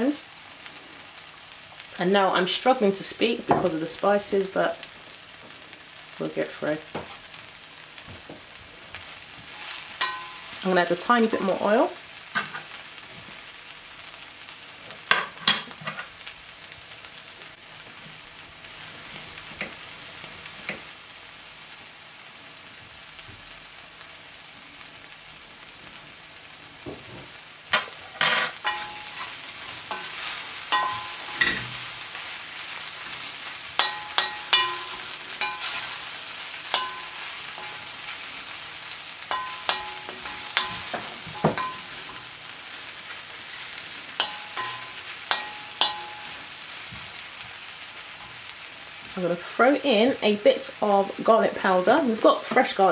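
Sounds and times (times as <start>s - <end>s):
mushrooms sizzling in oil: 0.0s - 52.9s
wooden spoon scraping and knocking pot: 39.3s - 42.2s.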